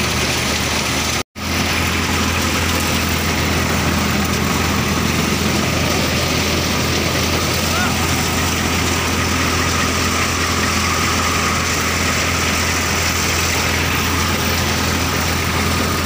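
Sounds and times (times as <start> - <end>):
tractor engine and thresher din: 0.0 - 16.0.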